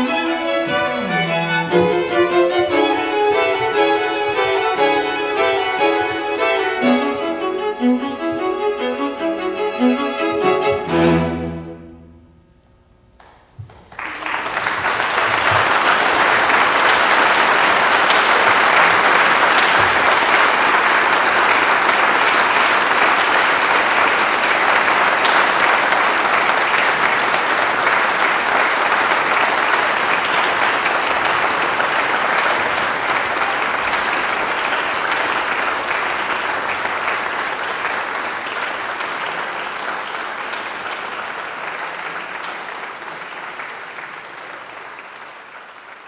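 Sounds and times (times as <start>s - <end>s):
audience applauding: 0.0s - 11.3s, 13.2s - 46.0s
string quartet chord: 0.0s - 12.5s.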